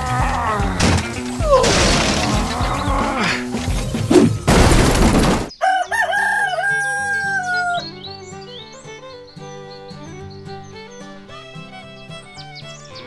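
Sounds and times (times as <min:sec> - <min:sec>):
background music: 0:00.0 - 0:04.5, 0:05.9 - 0:13.0
burst of noise: 0:00.8 - 0:05.5
rooster crowing: 0:05.5 - 0:07.9.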